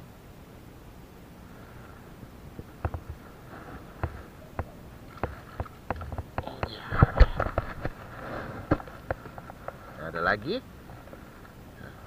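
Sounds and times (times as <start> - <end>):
knocks and rustling: 2.5 - 10.0.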